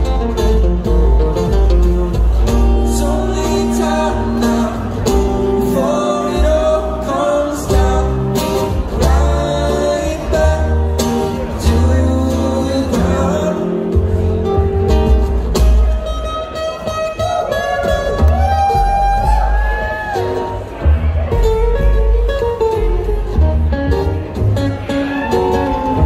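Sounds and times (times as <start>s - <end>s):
acoustic band music: 0.0s - 26.0s.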